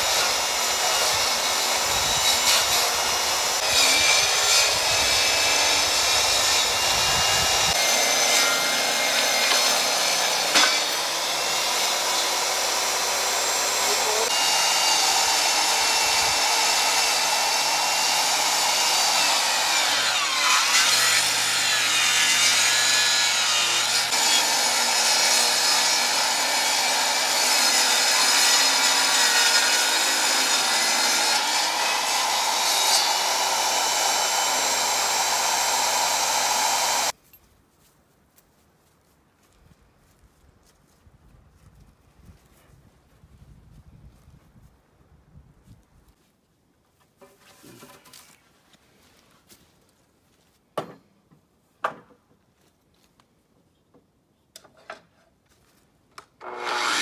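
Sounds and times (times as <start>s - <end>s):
saw motor high whine: 31.4s - 37.1s
table saw ripping wooden board: 56.4s - 57.0s.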